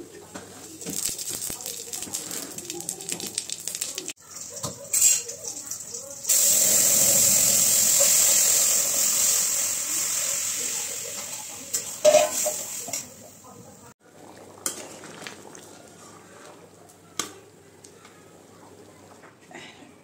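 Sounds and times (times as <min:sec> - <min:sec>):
water sizzling in hot pan: 0:00.6 - 0:15.5.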